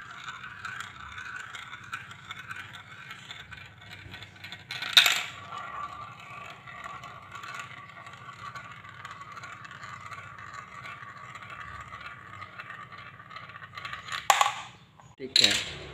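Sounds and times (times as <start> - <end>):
marble whirring in plastic funnel: 0.0 - 14.8.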